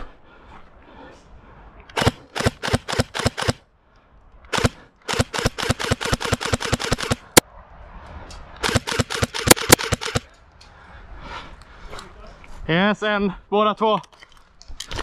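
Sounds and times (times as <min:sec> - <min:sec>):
airsoft gun firing bursts: 0:02.0 - 0:03.6, 0:04.5 - 0:07.4, 0:08.6 - 0:10.3.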